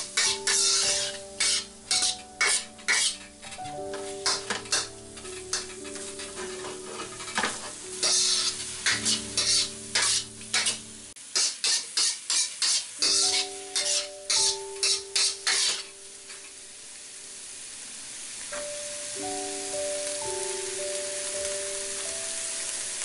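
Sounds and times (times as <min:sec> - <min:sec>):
background music: 0:00.0 - 0:11.2, 0:18.6 - 0:23.0
spatula scraping wok: 0:00.0 - 0:16.6
food sizzling: 0:00.0 - 0:23.0.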